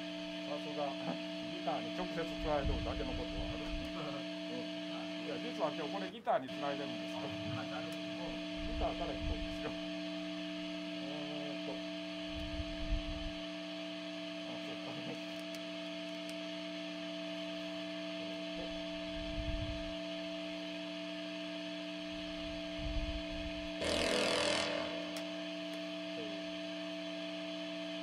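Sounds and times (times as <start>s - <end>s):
electric guitar amplifier hum: 0.0s - 28.0s
dull low thumps: 12.3s - 13.4s, 19.0s - 19.9s, 22.3s - 23.7s.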